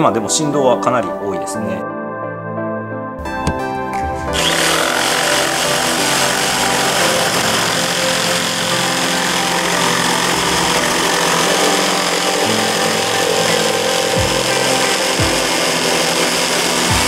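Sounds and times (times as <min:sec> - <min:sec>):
jigsaw sawing wood: 0:04.3 - 0:17.0.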